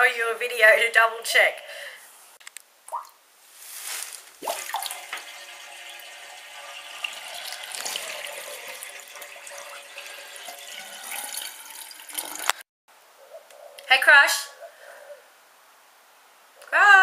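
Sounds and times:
water gurgling down a plughole: 0:04.4 - 0:12.6.

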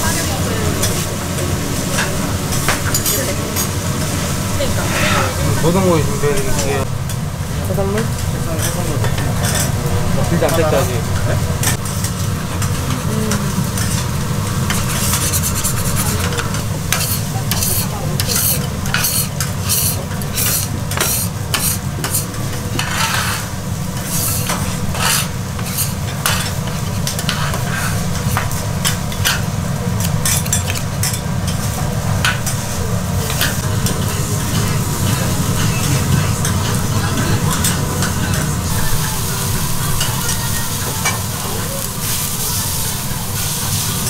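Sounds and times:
steak sizzling on hot iron plate: 0:13.5 - 0:29.4, 0:30.5 - 0:44.0.

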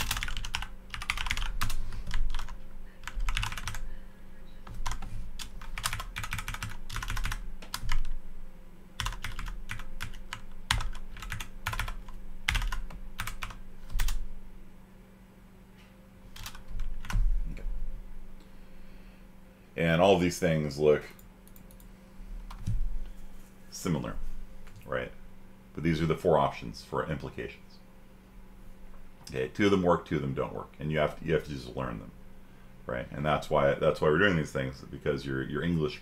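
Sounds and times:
typing on a computer keyboard: 0:00.0 - 0:03.9, 0:04.6 - 0:08.2, 0:09.0 - 0:14.2, 0:16.4 - 0:17.2.

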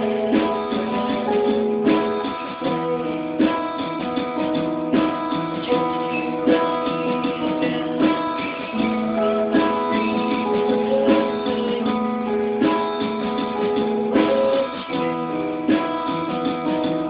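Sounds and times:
acoustic guitar strummed chords: 0:00.0 - 0:17.0
picked guitar notes: 0:00.0 - 0:17.0.

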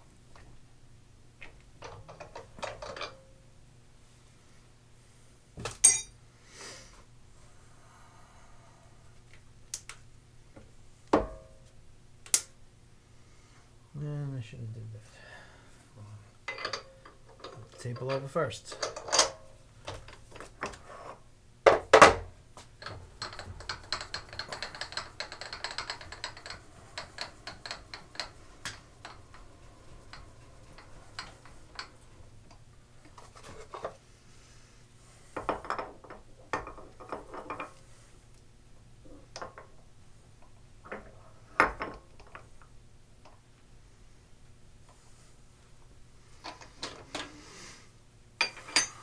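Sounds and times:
metal clicks and rattles: 0:22.8 - 0:32.6.

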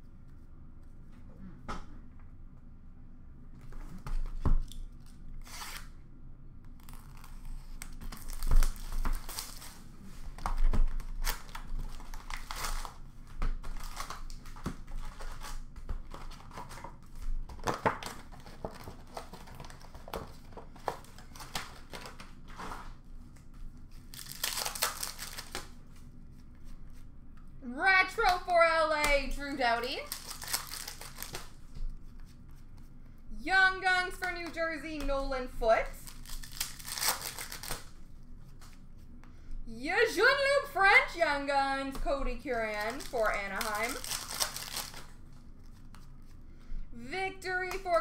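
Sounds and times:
wrappers tearing and crinkling: 0:04.7 - 0:05.9, 0:06.8 - 0:10.0, 0:10.8 - 0:22.7, 0:24.0 - 0:25.8, 0:29.7 - 0:31.6, 0:36.0 - 0:38.0, 0:42.5 - 0:45.9.

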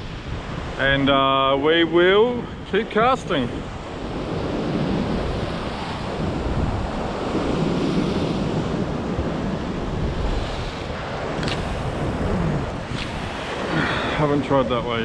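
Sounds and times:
wind buffeting microphone: 0:00.0 - 0:15.0
surf breaking against rocks: 0:10.2 - 0:15.0.

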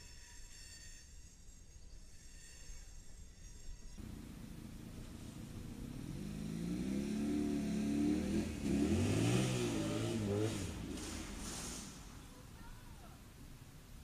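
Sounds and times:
motorcycle engine accelerating: 0:04.0 - 0:12.4.

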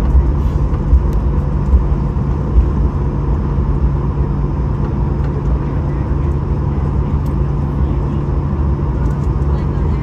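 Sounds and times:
constant hum: 0:00.0 - 0:10.0
jet engines low rumble: 0:00.0 - 0:10.0.

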